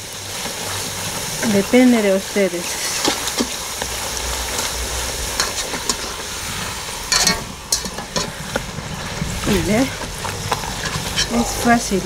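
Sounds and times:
dough frying in hot oil: 0.0s - 12.0s
wire scraping metal pan: 5.3s - 11.9s.

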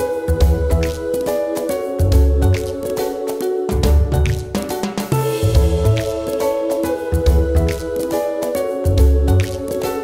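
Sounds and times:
music with bass and drum beat: 3.7s - 8.0s.

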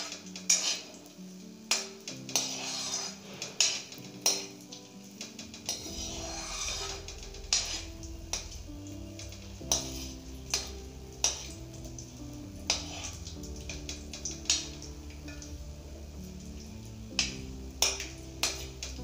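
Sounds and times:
metal ladle scraping pan: 0.0s - 1.1s, 1.7s - 4.6s, 5.2s - 16.5s, 17.1s - 19.0s
background music: 0.0s - 19.0s.

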